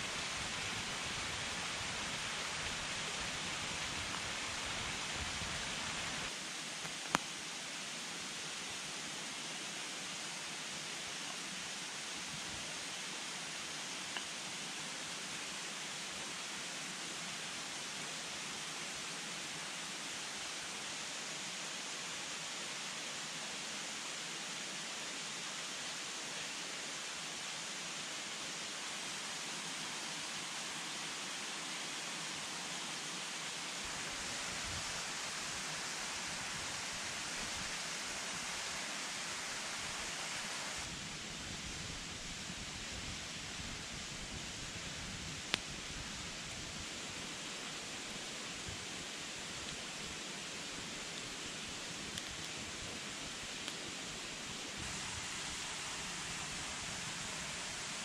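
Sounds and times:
stream rushing: 0.0 - 6.5, 26.0 - 41.0, 46.8 - 58.0.

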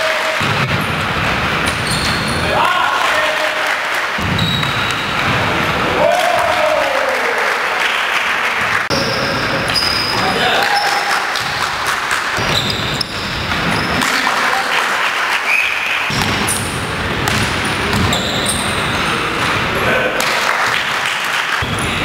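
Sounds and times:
players calling out: 0.0 - 20.4
basketball bouncing on court: 0.4 - 2.4, 4.2 - 5.7, 11.3 - 13.9, 16.1 - 19.6
shoe squeaks: 1.6 - 2.6, 4.2 - 5.2, 8.9 - 11.0, 12.4 - 14.2, 15.4 - 16.7, 17.7 - 19.4.

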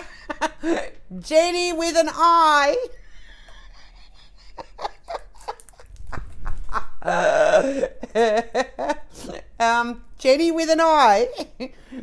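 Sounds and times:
woman laughing: 0.0 - 1.0, 3.0 - 9.4.

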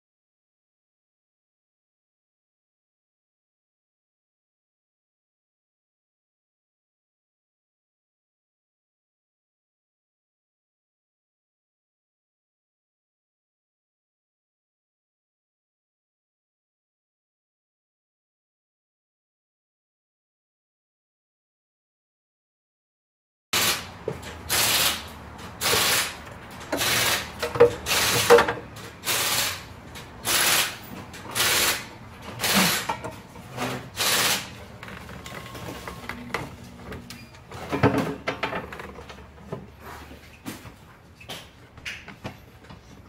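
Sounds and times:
harsh noisy strokes: 24.5 - 26.2, 29.0 - 34.6
scattered clicks and knocks: 25.4 - 29.1.

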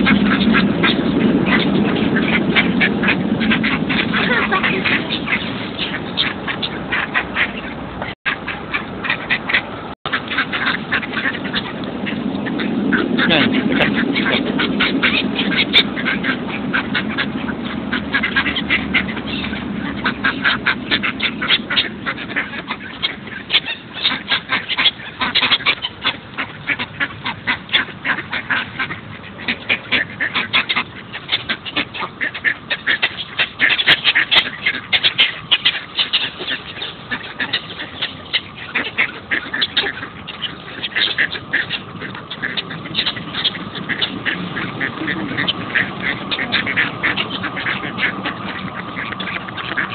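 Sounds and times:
ducks quacking: 0.0 - 49.9.

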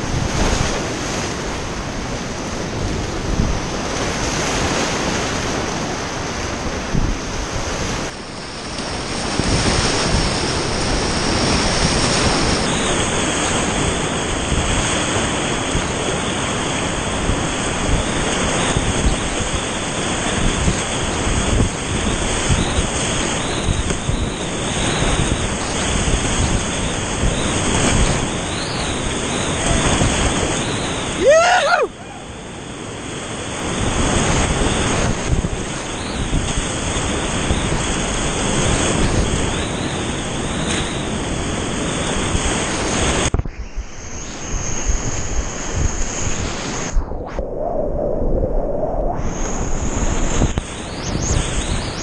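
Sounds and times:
whitewater rapids rushing: 25.2 - 33.0.

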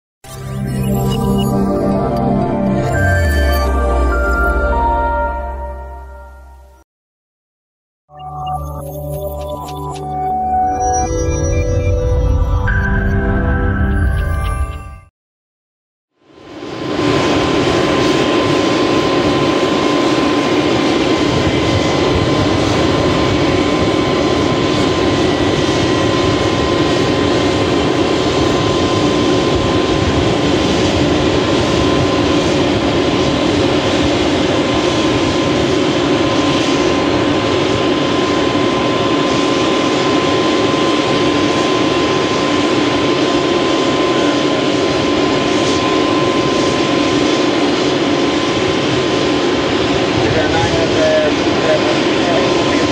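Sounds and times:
jet engines roaring: 16.4 - 52.9.

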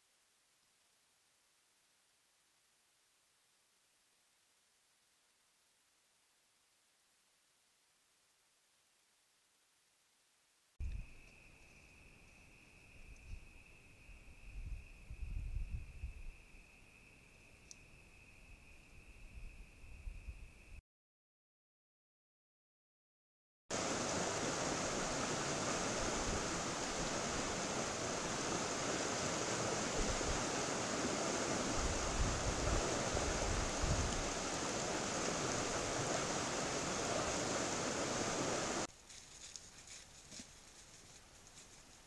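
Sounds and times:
faint ticks and rustles: 10.8 - 15.1, 15.9 - 18.2, 38.9 - 42.0.

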